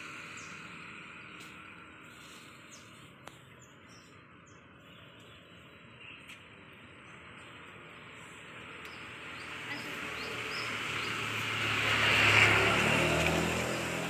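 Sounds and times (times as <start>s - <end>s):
vehicle passing: 6.9s - 14.0s.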